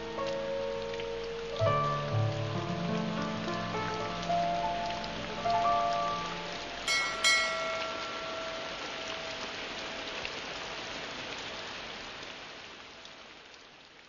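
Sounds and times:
rain pattering: 0.0s - 14.0s
struck musical notes ringing: 6.9s - 10.1s.

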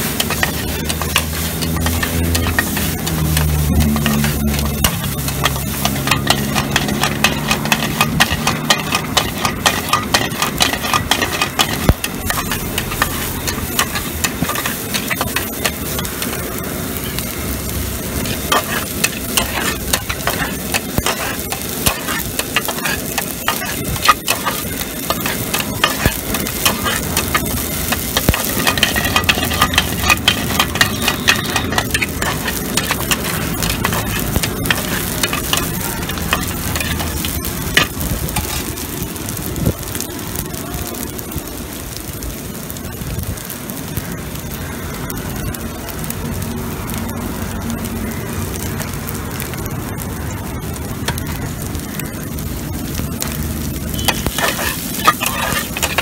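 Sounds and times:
metal spatula scraping a frying pan: 0.0s - 17.2s, 18.0s - 38.8s, 53.2s - 56.0s
oil sizzling: 0.0s - 56.0s.

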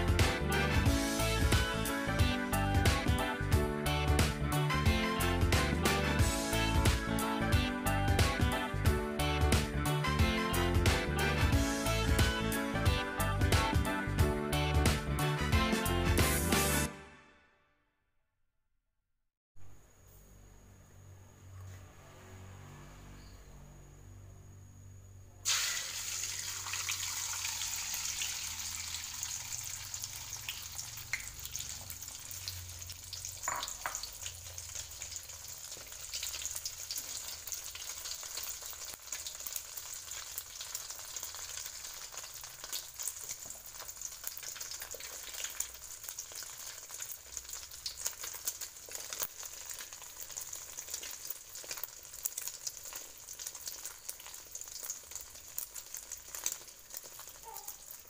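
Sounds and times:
deep-frying crackling: 25.4s - 58.0s
egg sizzling in hot oil: 25.4s - 58.0s.

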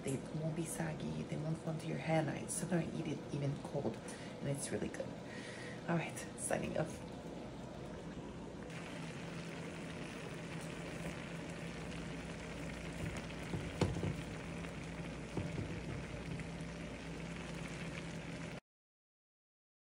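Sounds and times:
water sizzling in a frying pan: 5.9s - 18.6s.

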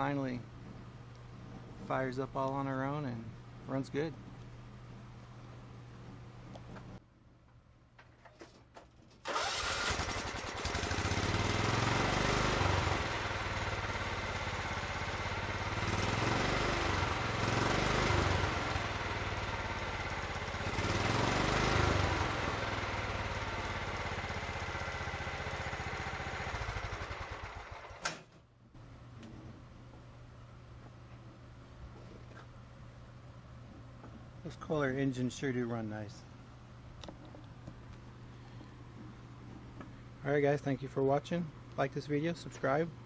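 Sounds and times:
riding mower engine running: 9.2s - 28.2s
engine shut-off sharp noise: 9.2s - 28.3s.

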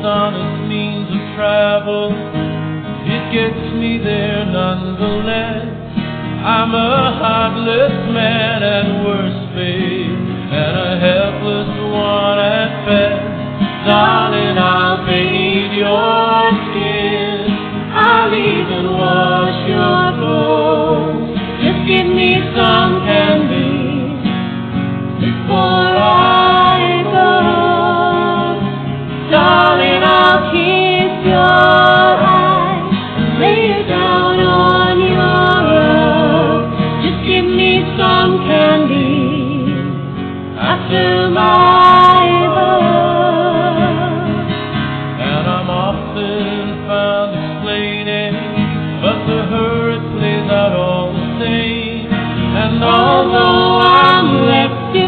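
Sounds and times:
guitar accompaniment: 0.0s - 55.0s
person singing: 3.1s - 24.4s, 25.4s - 44.6s, 49.0s - 55.0s.

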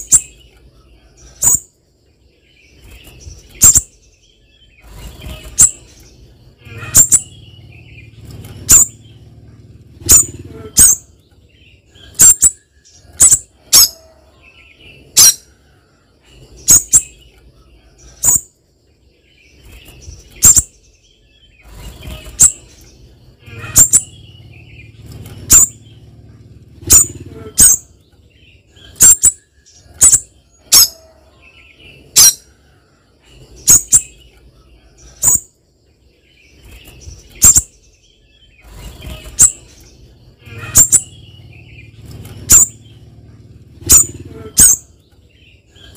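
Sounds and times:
faint low rumble: 0.0s - 45.9s
bird high-pitched call notes: 6.6s - 8.0s, 10.0s - 11.2s, 12.0s - 15.5s, 23.4s - 24.8s, 26.8s - 28.0s, 28.8s - 32.5s, 40.4s - 42.9s, 43.8s - 45.0s.

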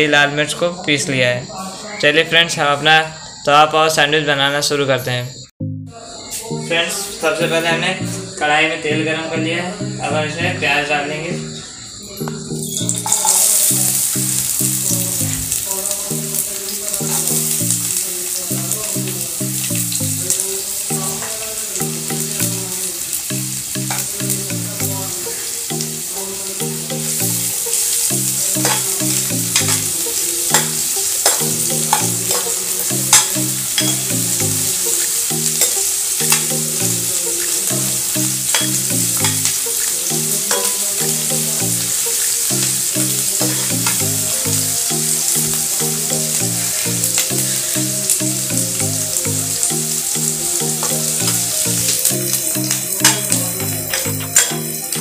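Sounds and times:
soft background music: 5.6s - 55.0s
onions sizzling in hot oil: 10.7s - 55.0s
spoon clicking against pan: 28.6s - 29.0s, 29.6s - 29.9s, 30.5s - 34.1s, 35.5s - 36.6s, 38.5s - 39.6s, 40.5s - 40.8s, 52.0s - 54.7s.

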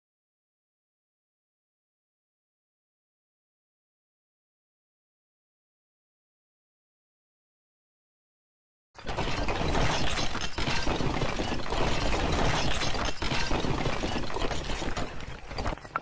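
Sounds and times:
bricks tumbling and clattering: 9.0s - 16.0s.

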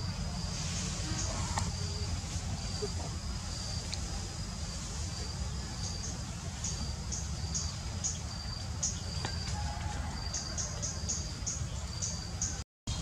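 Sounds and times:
low steady rumble: 0.0s - 10.2s
insects trilling: 0.0s - 12.6s.

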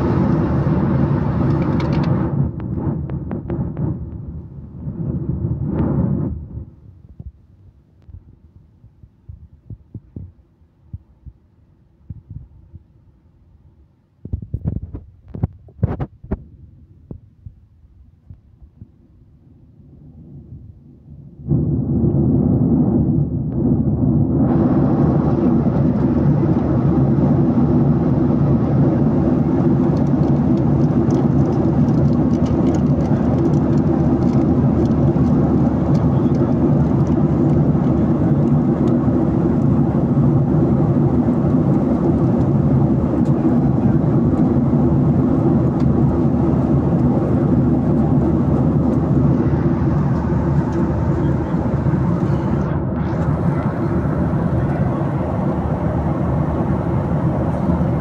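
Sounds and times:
jet engine drone: 0.0s - 7.0s, 19.4s - 58.0s
air rushing past fuselage: 33.9s - 58.0s.

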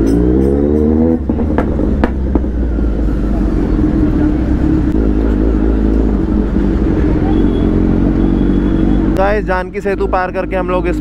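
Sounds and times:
exhaust pops: 0.0s - 2.6s
motorcycle engine revving: 0.0s - 11.0s.

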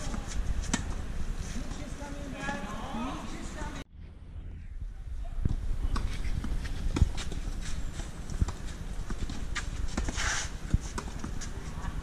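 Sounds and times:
tennis ball bouncing: 0.0s - 1.0s.

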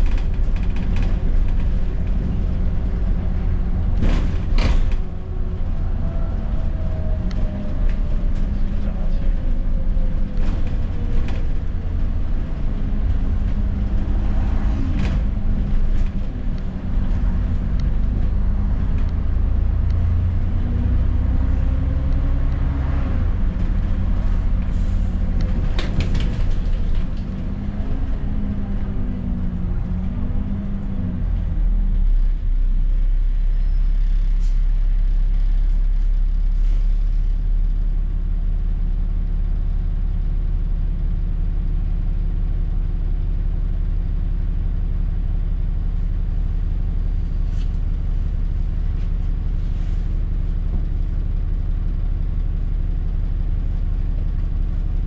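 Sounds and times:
bus engine rumble: 0.0s - 55.0s.

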